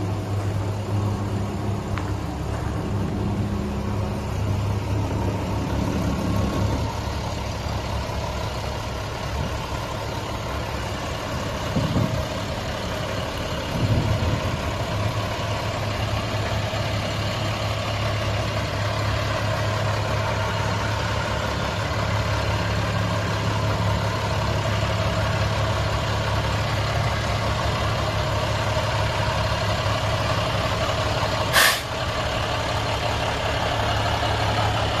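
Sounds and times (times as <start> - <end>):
diesel truck engine idling: 0.0 - 35.0
short sharp sound: 31.5 - 31.9.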